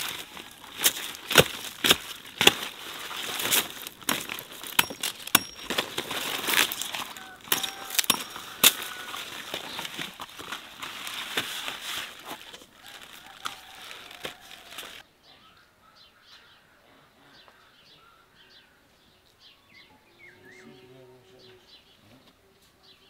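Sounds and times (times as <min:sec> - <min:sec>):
leaves and stems rustling: 0:00.0 - 0:15.0
stems snapping: 0:00.0 - 0:15.0.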